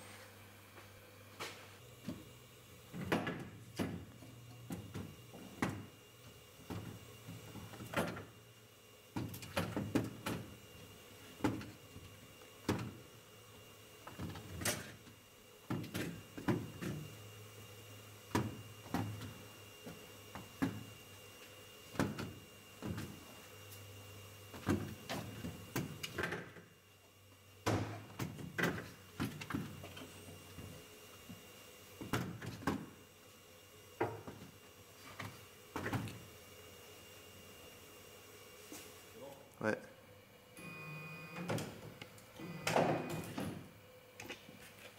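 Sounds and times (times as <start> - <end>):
faint steady hum: 39.1 - 44.9.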